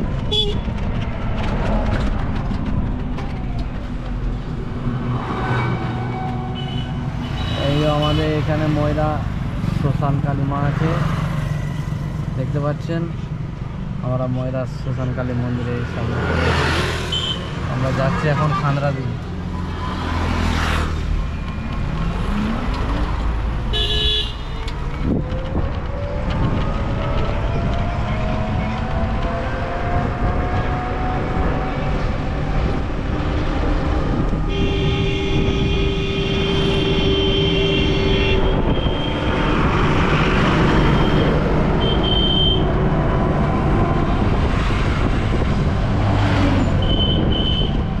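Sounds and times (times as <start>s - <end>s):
e-rickshaw road rumble: 0.0s - 48.0s
vehicle horn honk: 0.3s - 0.6s, 23.7s - 24.5s, 34.5s - 39.3s, 41.8s - 42.7s, 46.8s - 47.8s.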